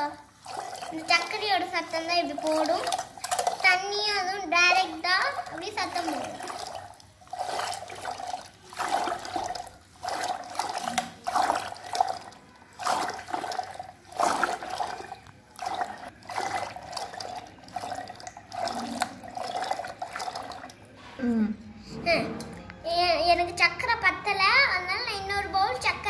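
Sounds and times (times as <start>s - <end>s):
churner swishing in water: 0.0s - 21.0s.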